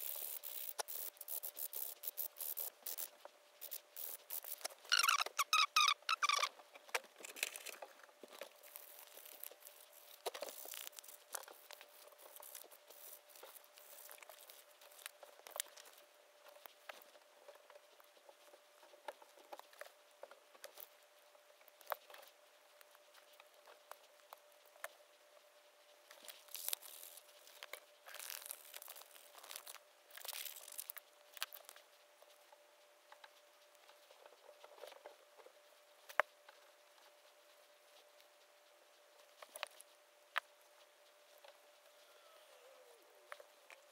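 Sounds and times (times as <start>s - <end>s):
short high-pitched squeaks: 0.2s - 6.5s
sandpaper crinkling and scraping: 7.4s - 16.0s, 26.1s - 31.8s.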